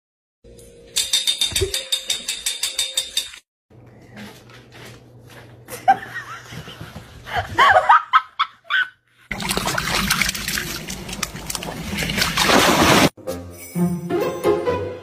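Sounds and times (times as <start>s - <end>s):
dog splashing through water: 9.3s - 13.1s.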